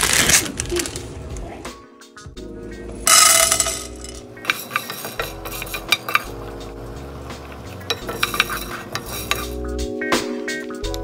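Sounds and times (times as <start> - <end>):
peppercorns clattering into a pan: 3.1 - 6.4, 7.9 - 9.6
peppercorns clicking in a pan: 3.1 - 6.4, 7.8 - 9.6.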